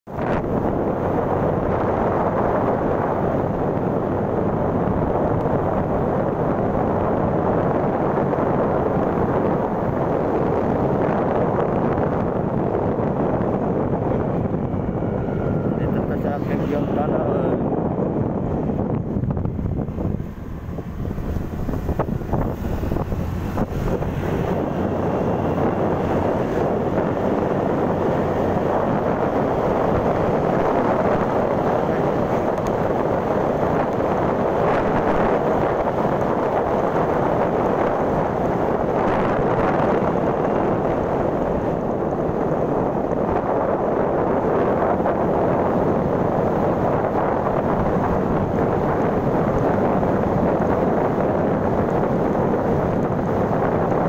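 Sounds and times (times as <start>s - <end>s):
road noise: 0.0s - 54.0s
wind rushing over microphone: 0.0s - 54.0s
scooter engine: 18.1s - 54.0s.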